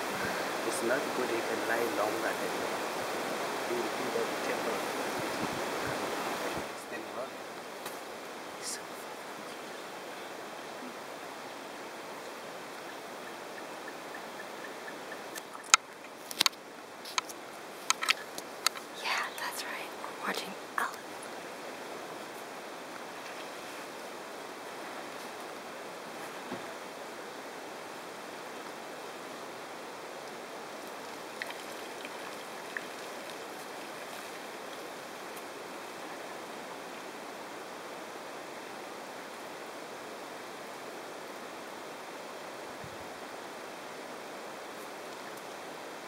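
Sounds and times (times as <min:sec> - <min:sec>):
outdoor hiss: 0:00.0 - 0:46.0
faint ticks: 0:15.3 - 0:19.2.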